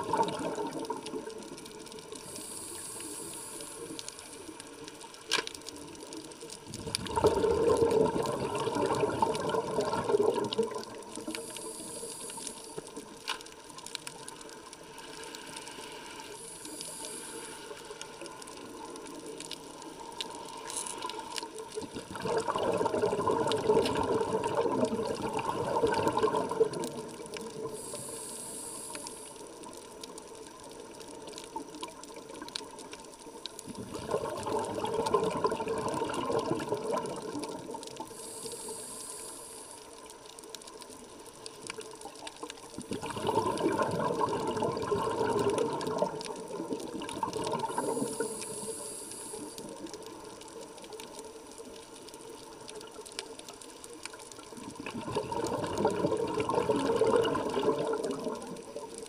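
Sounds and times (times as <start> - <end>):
underwater exhalation bubbling: 0.0 - 2.0, 6.7 - 11.9, 21.1 - 28.0, 33.6 - 38.2, 42.7 - 49.9, 54.5 - 59.0
regulator hissing inhalation: 2.2 - 4.4, 11.3 - 12.9, 15.5 - 18.2, 27.7 - 29.4, 38.1 - 39.9, 47.8 - 49.7.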